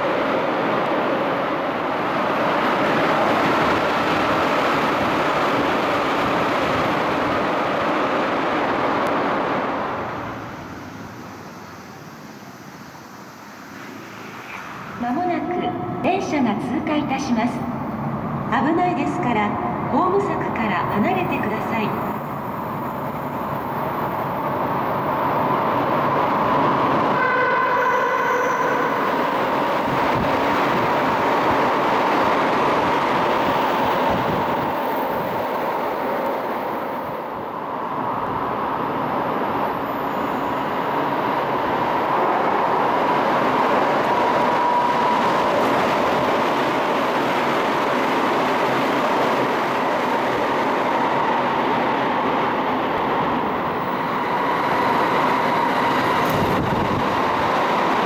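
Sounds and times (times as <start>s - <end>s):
train rushing through station: 0.0s - 58.0s
train horn: 27.1s - 29.1s.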